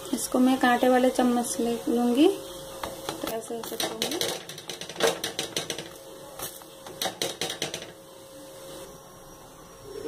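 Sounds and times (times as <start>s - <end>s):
fork tapping on griddle: 2.8s - 6.0s, 6.9s - 8.0s.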